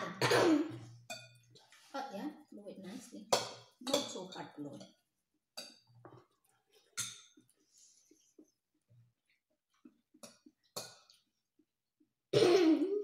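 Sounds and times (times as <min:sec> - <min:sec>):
cutlery clinking on plates: 0:00.0 - 0:01.5, 0:03.3 - 0:05.0, 0:06.9 - 0:07.5.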